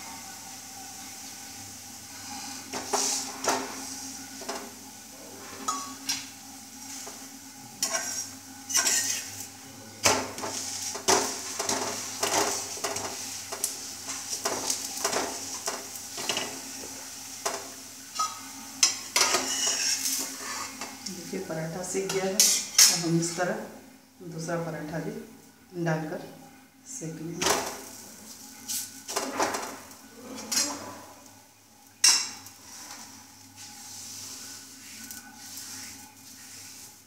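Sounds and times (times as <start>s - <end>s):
food sizzling: 0.0s - 26.2s, 26.9s - 37.0s
spoon scraping iron pan: 7.8s - 9.4s, 18.2s - 20.8s, 22.1s - 23.0s.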